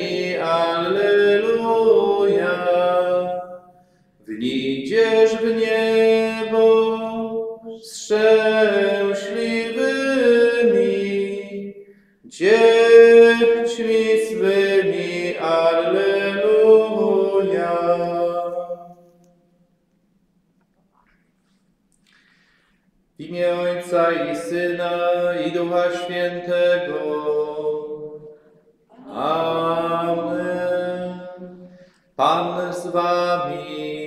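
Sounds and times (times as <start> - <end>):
man chanting a prayer: 23.2 - 27.9, 32.2 - 34.0.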